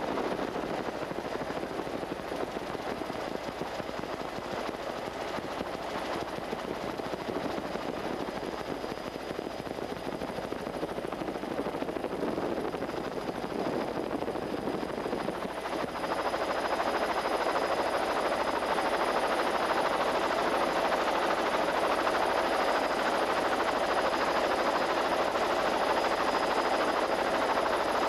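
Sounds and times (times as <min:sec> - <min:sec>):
helicopter rotor and engine: 0:00.0 - 0:28.0.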